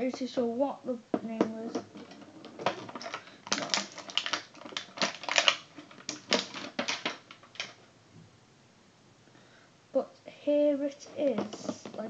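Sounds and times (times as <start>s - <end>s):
plastic packaging crinkling: 1.5s - 7.8s, 10.9s - 12.0s.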